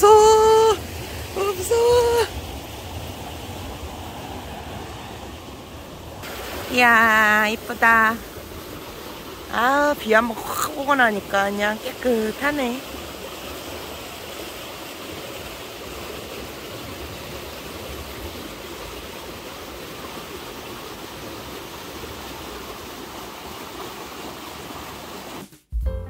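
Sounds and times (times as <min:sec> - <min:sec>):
stream rushing: 0:00.0 - 0:25.5.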